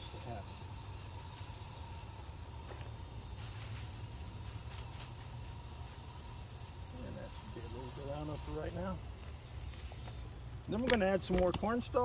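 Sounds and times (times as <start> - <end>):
hose nozzle spraying water: 0.0 - 12.0.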